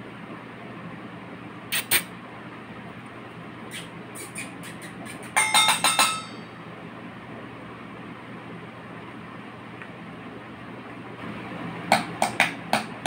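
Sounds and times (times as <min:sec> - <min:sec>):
short ringing clink: 0:05.4 - 0:06.6.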